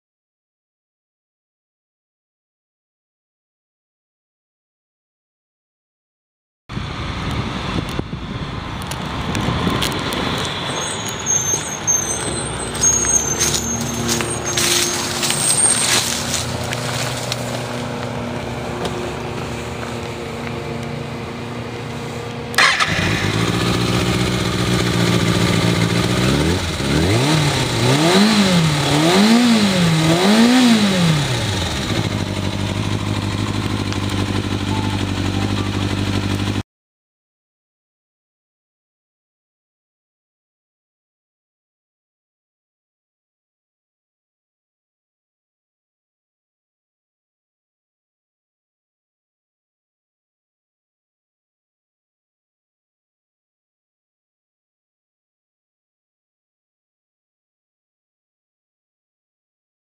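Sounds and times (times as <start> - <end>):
motorcycle engine revving: 6.8 - 36.6
motorcycle engine idling: 11.0 - 27.8, 29.9 - 36.6.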